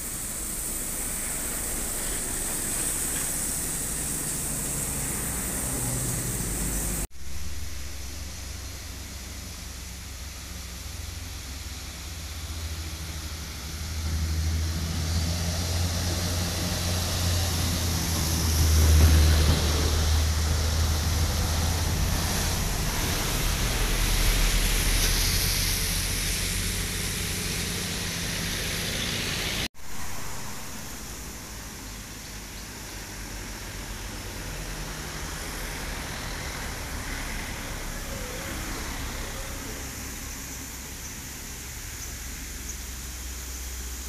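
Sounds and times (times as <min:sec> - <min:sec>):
diesel trucks droning past: 0:00.0 - 0:41.9
cars passing: 0:00.0 - 0:43.1
tyres hissing on road: 0:00.0 - 0:44.0
motorcycles passing: 0:00.6 - 0:07.1, 0:14.1 - 0:29.7.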